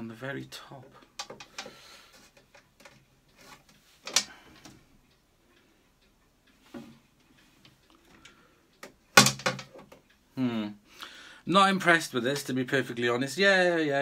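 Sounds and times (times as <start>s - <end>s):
plastic clicks and knocks: 1.2s - 1.7s, 4.0s - 4.8s, 8.8s - 10.0s.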